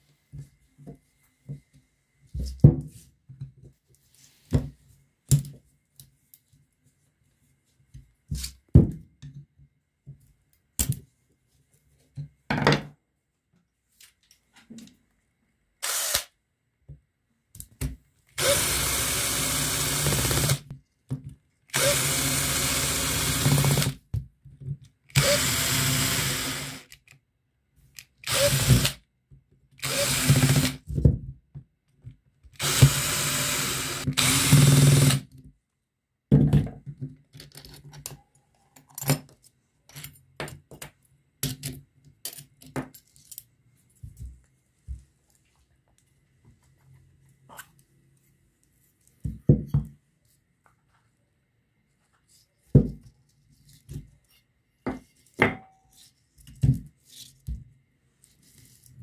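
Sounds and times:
power drill whining: 15.8 - 16.3, 18.4 - 20.6, 21.7 - 24.0, 25.1 - 26.9, 28.2 - 29.0, 29.8 - 30.8, 32.6 - 35.2
clicks and rattles of parts: 37.0 - 43.5.

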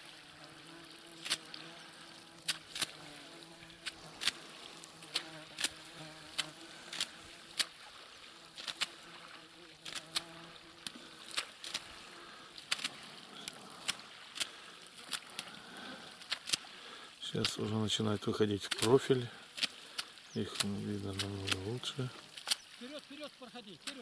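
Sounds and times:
insect buzzing: 0.0 - 24.0
sharp irregular clicks: 5.1 - 7.7, 12.6 - 15.6, 18.6 - 21.8.

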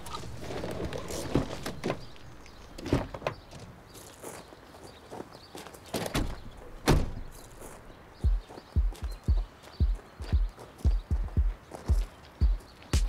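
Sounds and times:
footsteps: 0.0 - 13.0
car door slamming: 6.2 - 7.3.

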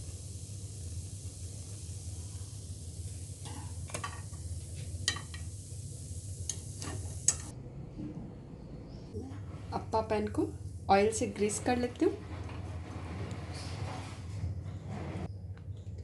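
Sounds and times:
low hum and hiss: 0.0 - 12.4.

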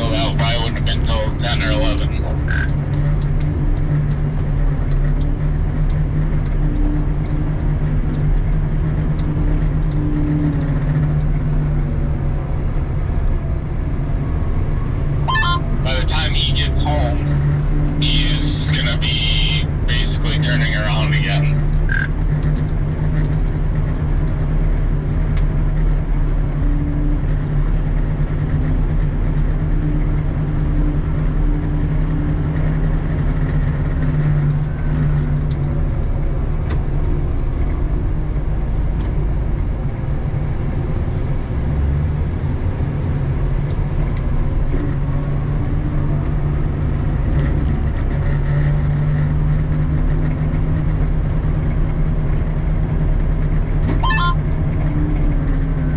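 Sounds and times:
diesel engine running in cab: 0.0 - 55.9
faint whine: 15.2 - 22.1.

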